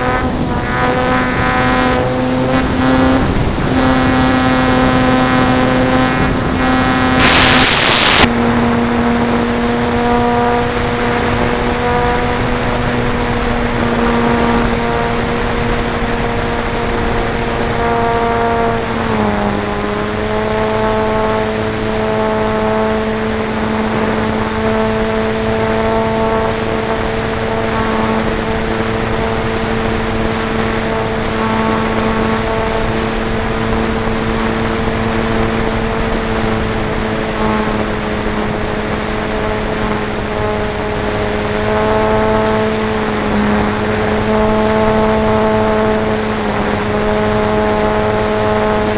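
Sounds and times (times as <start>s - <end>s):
electric motor and propeller whine: 0.0s - 48.9s
air rushing past microphone: 6.2s - 8.6s.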